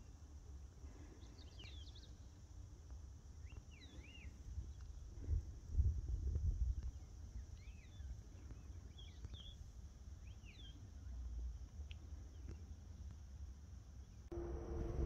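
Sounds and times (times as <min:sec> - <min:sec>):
bird chirps: 0:10.2 - 0:10.8
low steady rumble: 0:14.2 - 0:15.0.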